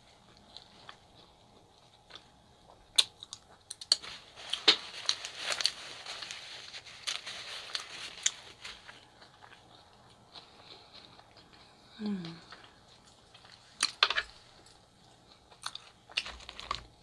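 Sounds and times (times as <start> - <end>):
paper napkin crinkling: 4.0 - 9.2.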